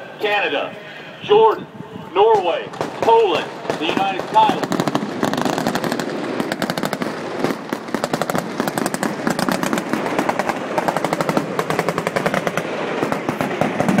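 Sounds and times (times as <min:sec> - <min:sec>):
rapid automatic gunfire: 0:02.3 - 0:14.0.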